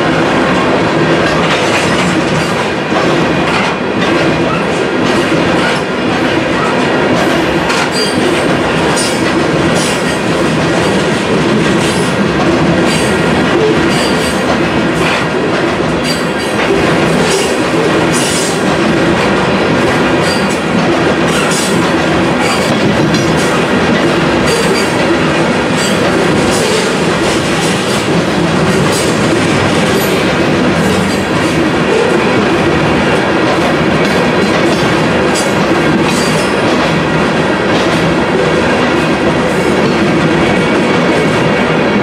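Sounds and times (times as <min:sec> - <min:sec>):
wheels clacking over rail joints: 0:00.0 - 0:41.7
freight train rumbling past: 0:00.0 - 0:42.0.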